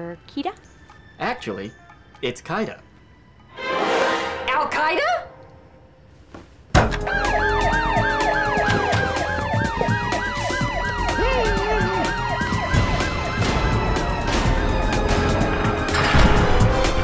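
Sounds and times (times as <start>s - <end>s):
sirens wailing slowly: 0.2s - 3.5s, 7.0s - 17.0s
siren yelping: 7.0s - 15.3s.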